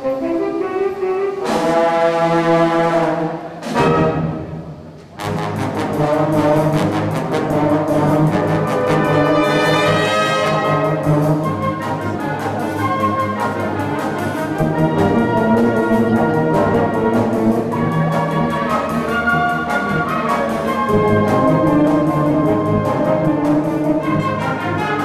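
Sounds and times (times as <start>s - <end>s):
brass sustained chords: 0.0s - 25.0s
wind band playing: 0.0s - 25.0s.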